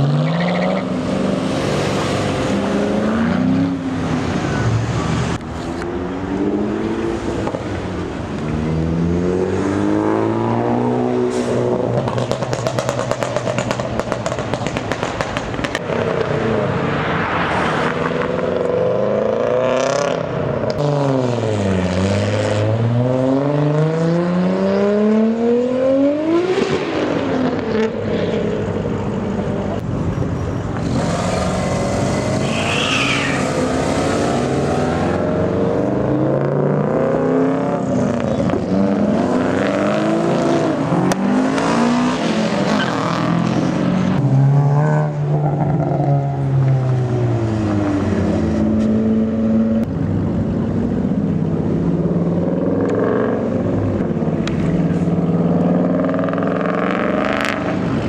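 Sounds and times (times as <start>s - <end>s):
cars revving and accelerating: 0.0s - 58.0s.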